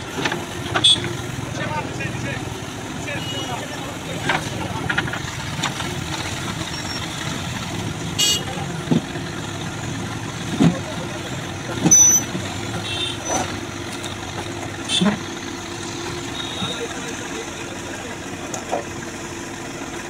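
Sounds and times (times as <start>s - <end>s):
diesel engine running: 0.0s - 20.0s
vehicle horn toot: 0.8s - 1.2s, 3.1s - 3.8s, 8.2s - 8.6s, 11.9s - 13.5s, 14.8s - 15.2s, 16.2s - 17.0s.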